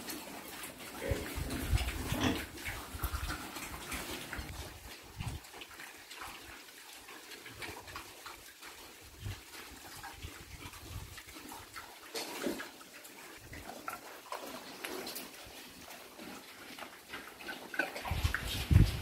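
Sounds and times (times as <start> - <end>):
pig snorting: 0.0 - 4.6, 7.2 - 19.0
piglets snuffling and chewing: 0.0 - 19.0
pig grunting: 0.9 - 3.5.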